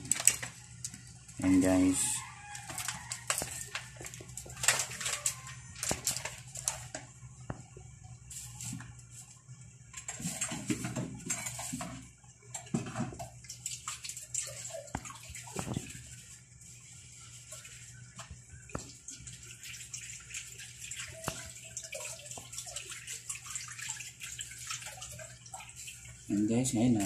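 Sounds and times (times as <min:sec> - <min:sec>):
water boiling in a pot: 0:00.0 - 0:27.0.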